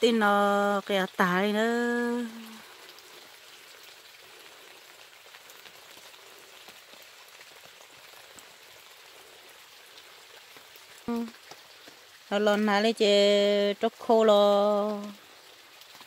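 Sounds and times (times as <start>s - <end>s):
light rain pattering: 0.0s - 16.0s.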